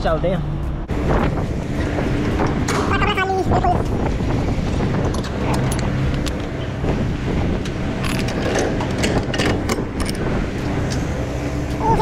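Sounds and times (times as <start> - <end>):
wind buffeting microphone: 0.9 - 12.0
trailer doors clicking and knocking: 4.7 - 11.2.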